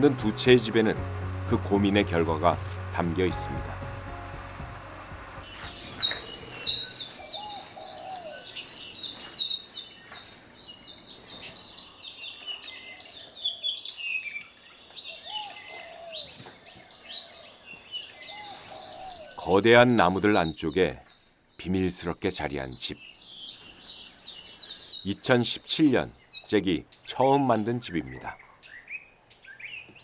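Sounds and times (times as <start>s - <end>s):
birds chirping and singing: 0.0s - 30.0s
rising and falling bird call: 2.0s - 20.5s.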